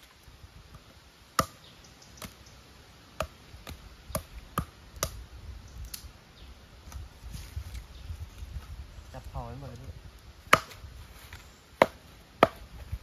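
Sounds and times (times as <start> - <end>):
machete chopping wood: 0.7 - 1.6, 3.2 - 5.2, 10.4 - 10.8, 11.8 - 12.8.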